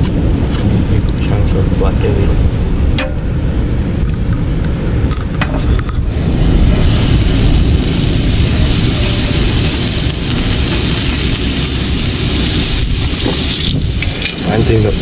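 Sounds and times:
wind buffeting microphone: 0:00.0 - 0:15.0
butter sizzling in frying pan: 0:06.1 - 0:15.0.

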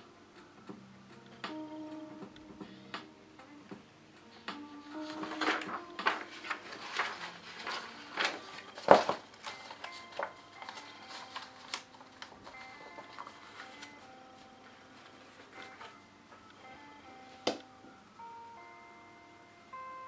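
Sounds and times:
quiet lo-fi music: 0:00.0 - 0:20.0
paper pages rustling: 0:04.8 - 0:16.0.

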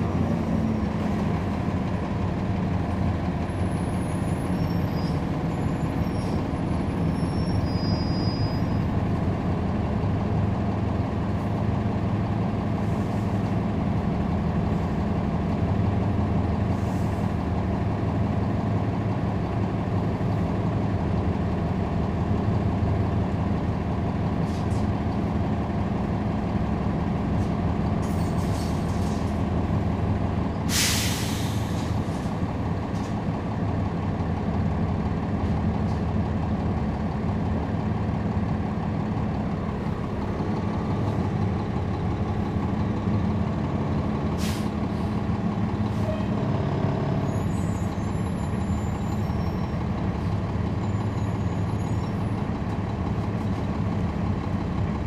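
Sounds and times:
diesel engine idling: 0:00.0 - 0:07.7, 0:08.6 - 0:55.0
air brakes hiss: 0:30.7 - 0:32.3, 0:44.4 - 0:45.1.

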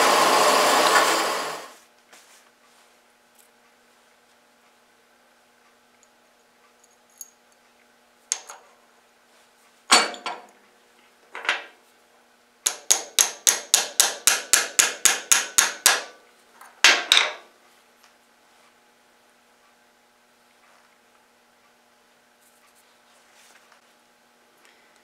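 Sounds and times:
hammer tapping pin into metal: 0:12.6 - 0:16.1.

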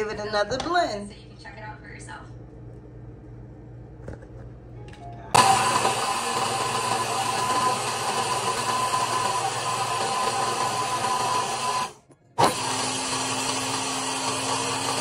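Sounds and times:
blender motor running: 0:05.4 - 0:15.0.

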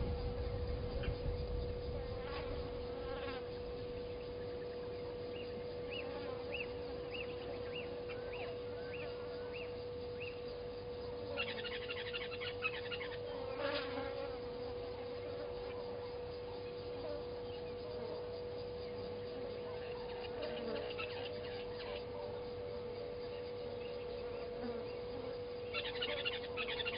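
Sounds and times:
steady hum: 0:00.0 - 0:26.9
bird calling: 0:11.3 - 0:13.4, 0:25.6 - 0:26.9.

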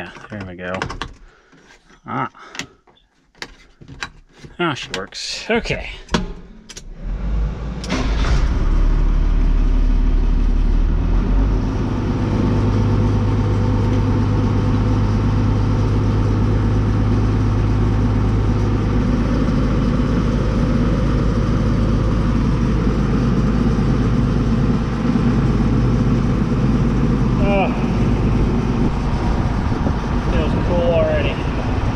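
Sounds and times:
tractor engine running: 0:03.9 - 0:31.9
air conditioning blower rushing: 0:11.5 - 0:31.9.

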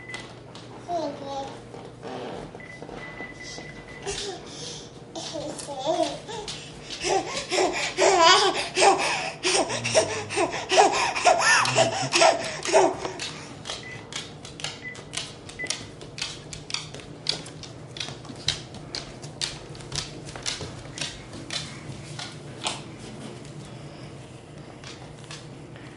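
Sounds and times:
toddler laughing and babbling: 0:00.9 - 0:01.6, 0:05.1 - 0:13.2.

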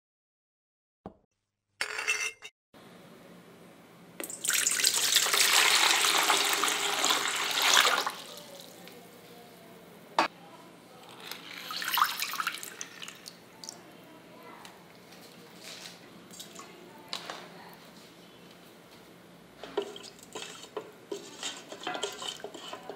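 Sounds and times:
water pouring into metal bowl: 0:11.2 - 0:13.4.

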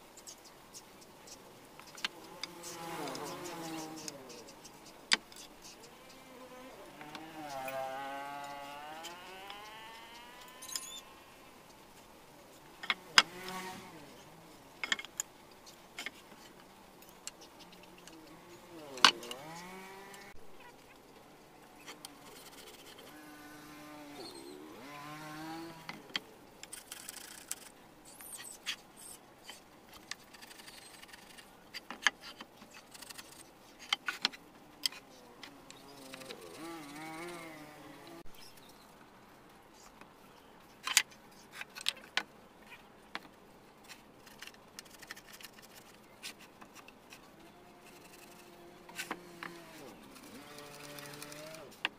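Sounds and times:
drawn-out calls: 0:00.0 - 0:11.6, 0:35.0 - 0:38.2, 0:47.2 - 0:51.8.

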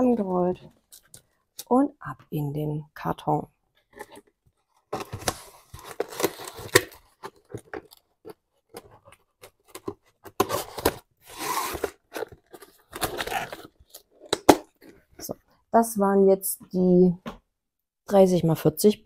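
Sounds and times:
crinkling and rustling: 0:00.0 - 0:01.7, 0:03.7 - 0:15.4
cardboard scraping: 0:04.9 - 0:14.3.

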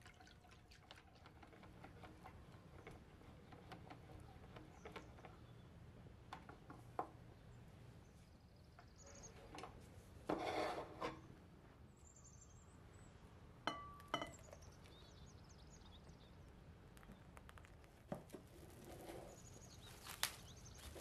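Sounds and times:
glass bowl clinking on counter: 0:13.7 - 0:14.5.

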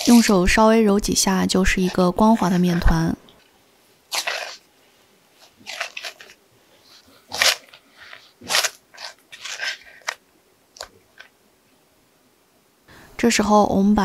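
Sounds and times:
dough kneaded against wood: 0:00.0 - 0:00.8, 0:04.1 - 0:10.2.

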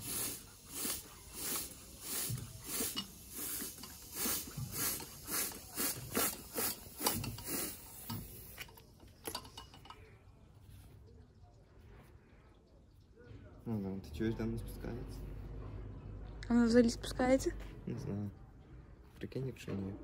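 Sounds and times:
hand bicycle pump hissing: 0:00.0 - 0:09.9.

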